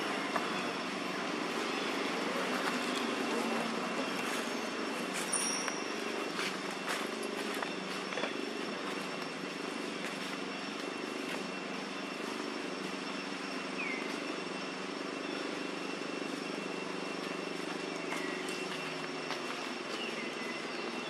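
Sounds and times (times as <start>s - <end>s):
low engine drone: 0.0s - 21.0s
thin high whine: 0.0s - 21.0s.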